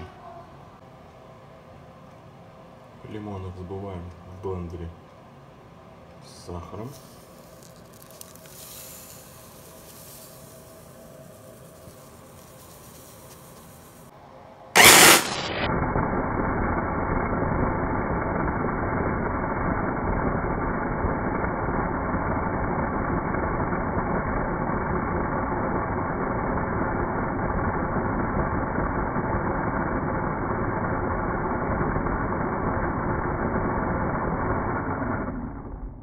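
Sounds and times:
blender motor chopping: 0:14.8 - 0:15.7.

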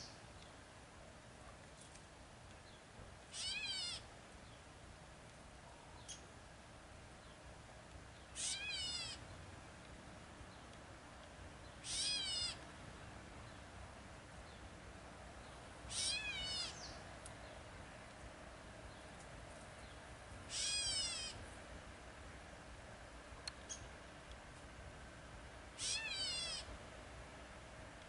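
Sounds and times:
catbird mew call: 0:03.3 - 0:04.0, 0:08.4 - 0:09.2, 0:11.8 - 0:12.6, 0:15.9 - 0:16.9, 0:20.5 - 0:21.4, 0:25.8 - 0:26.7.

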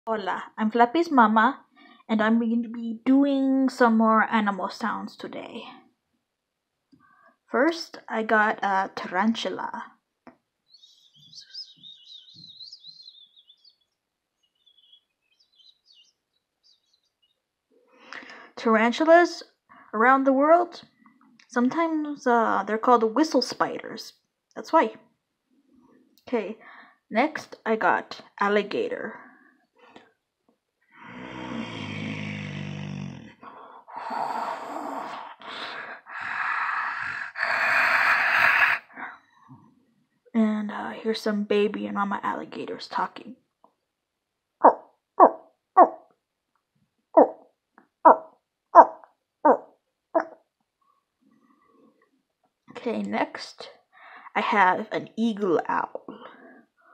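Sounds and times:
woman hissing like an alligator: 0:33.9 - 0:39.0.

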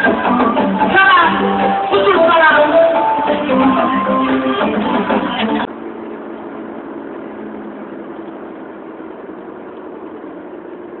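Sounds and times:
loud music: 0:00.0 - 0:05.7
road noise: 0:00.0 - 0:11.0
vehicle engine hum: 0:00.0 - 0:11.0.

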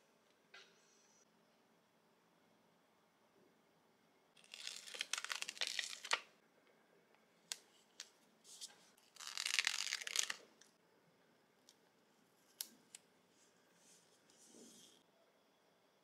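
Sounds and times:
sticker peeling crinkly tearing: 0:04.4 - 0:06.2, 0:09.1 - 0:10.4.

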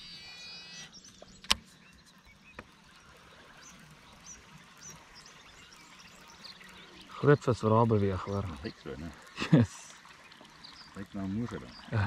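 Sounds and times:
fishing reel whine: 0:00.0 - 0:06.8
open water ambience: 0:00.0 - 0:12.0
wildlife chirps: 0:00.0 - 0:12.0.

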